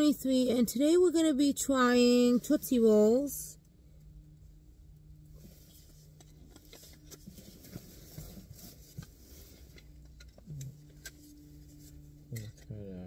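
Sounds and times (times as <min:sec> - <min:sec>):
light rustling and small clicks: 0:05.3 - 0:12.8.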